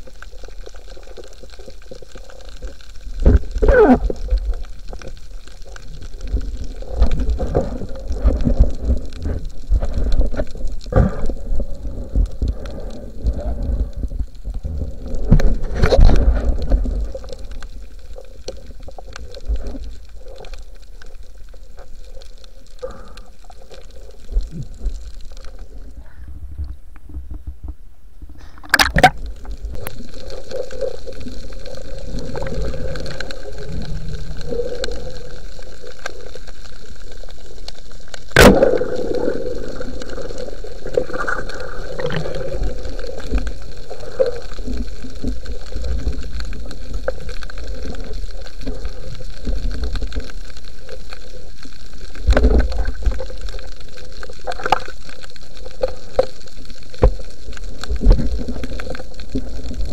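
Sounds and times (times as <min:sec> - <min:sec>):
muffled underwater water noise: 0:00.0 - 0:59.9.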